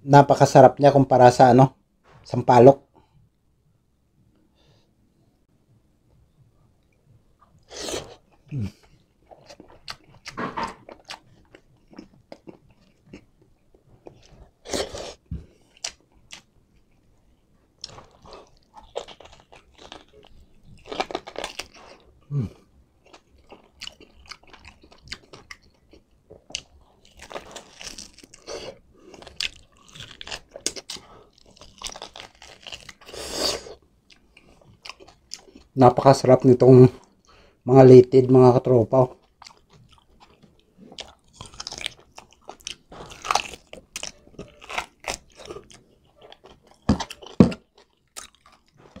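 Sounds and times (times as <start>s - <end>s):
biting and chewing meat: 7.4s - 35.8s, 39.1s - 49.0s.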